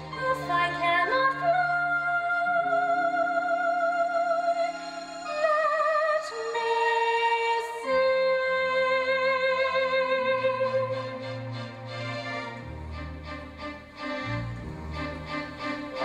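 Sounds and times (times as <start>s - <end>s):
woman singing with vibrato: 0.1s - 11.2s
instrumental accompaniment: 4.2s - 16.0s.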